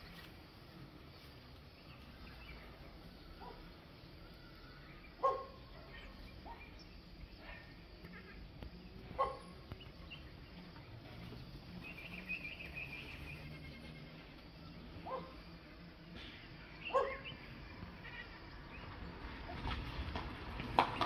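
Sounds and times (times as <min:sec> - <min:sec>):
hornbills nasal calls: 0:16.2 - 0:18.8.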